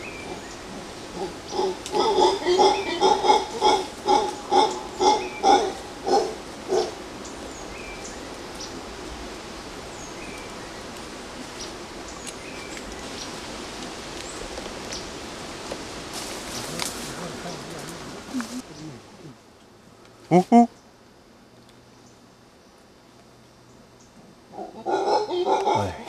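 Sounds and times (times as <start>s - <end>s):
steady forest hiss: 0.0s - 26.0s
howler monkey grunting barks: 0.2s - 7.0s, 24.5s - 26.0s.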